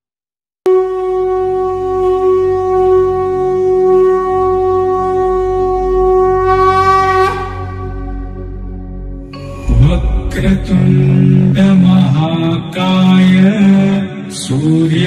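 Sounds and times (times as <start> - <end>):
conch shell blown: 0.6 - 9.9
low rumble: 7.4 - 13.7.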